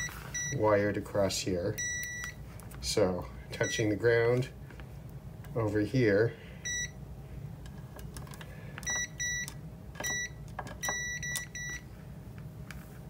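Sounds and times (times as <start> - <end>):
multimeter short beeps: 1.8 - 2.4, 8.8 - 11.8.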